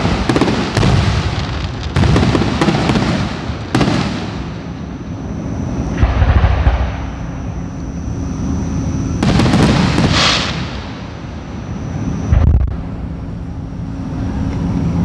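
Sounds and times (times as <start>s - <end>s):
distant firework booms: 0.0s - 5.0s, 5.9s - 7.7s, 9.2s - 11.5s
firework hiss: 0.0s - 7.5s, 9.2s - 11.4s.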